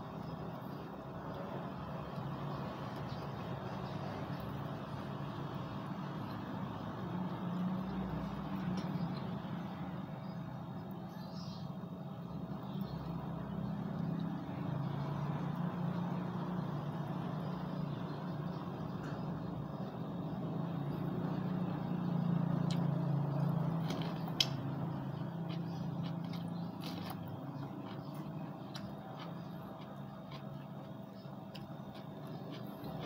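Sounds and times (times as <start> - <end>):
eating from a plastic bowl: 22.7 - 33.0.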